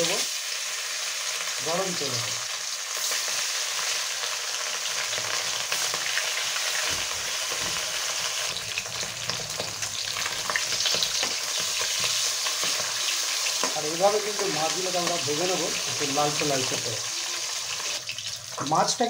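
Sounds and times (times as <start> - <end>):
fish frying in oil: 0.0 - 19.0
spatula tapping pan: 10.3 - 13.0.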